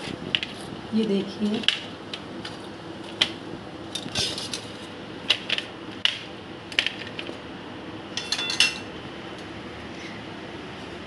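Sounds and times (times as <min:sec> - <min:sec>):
metal utensils tapping ceramic plate: 0:08.2 - 0:08.8.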